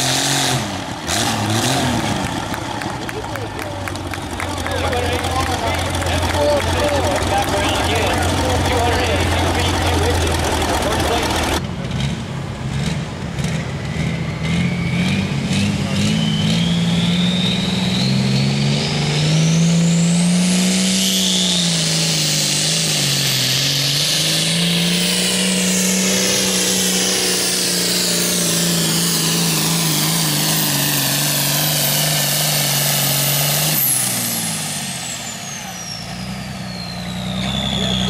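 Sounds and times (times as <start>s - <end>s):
diesel tractor engine at full throttle: 0.0s - 38.0s
high turbo whistle: 13.8s - 38.0s.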